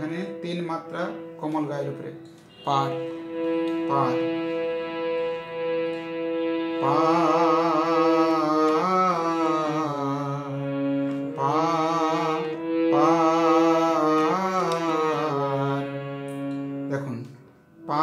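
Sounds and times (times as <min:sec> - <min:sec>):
harmonium playing held notes: 0:00.0 - 0:18.0
man singing: 0:06.8 - 0:16.2.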